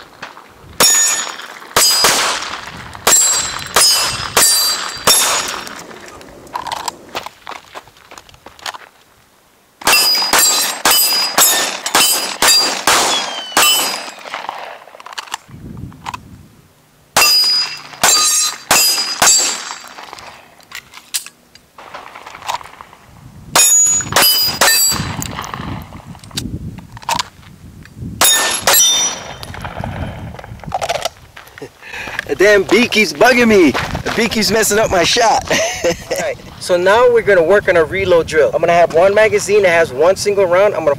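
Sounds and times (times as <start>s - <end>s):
handgun shots: 0.8s - 5.8s, 9.8s - 14.7s, 17.2s - 20.0s
steel targets pinging: 0.8s - 5.8s, 9.8s - 14.5s, 17.2s - 20.2s, 23.6s - 25.4s, 28.2s - 29.6s.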